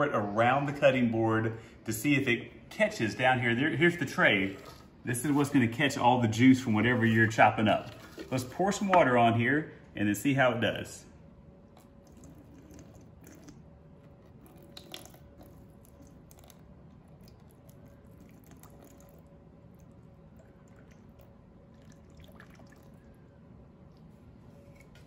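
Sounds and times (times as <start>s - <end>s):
water drips: 14.4s - 23.2s.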